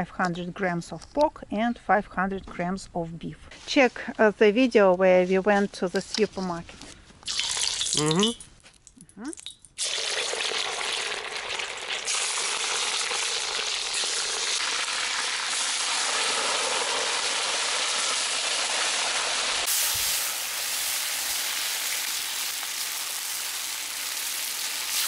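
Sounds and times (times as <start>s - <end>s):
meat sizzling in hot oil: 9.8s - 25.0s.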